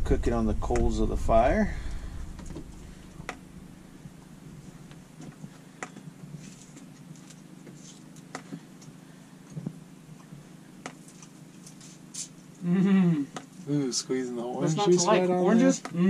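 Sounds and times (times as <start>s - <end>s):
steady low hum: 0.0s - 16.0s
person speaking: 14.6s - 16.0s.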